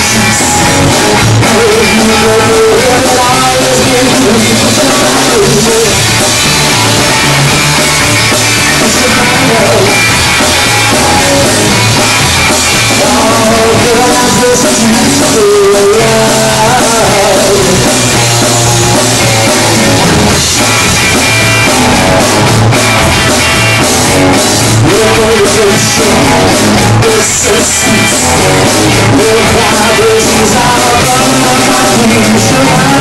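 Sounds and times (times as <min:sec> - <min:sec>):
man singing: 0:00.0 - 0:06.2, 0:08.5 - 0:10.2, 0:12.8 - 0:20.3, 0:24.7 - 0:33.0
live rock band: 0:00.0 - 0:33.0.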